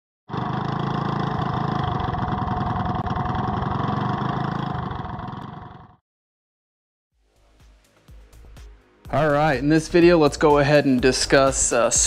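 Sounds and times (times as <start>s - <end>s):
small engine running: 0.3s - 6.0s.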